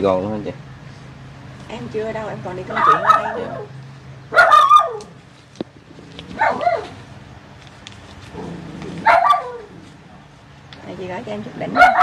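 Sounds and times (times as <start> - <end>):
dog barking: 2.7 - 3.7, 4.3 - 5.1, 6.4 - 7.0, 9.0 - 9.7, 11.8 - 12.0.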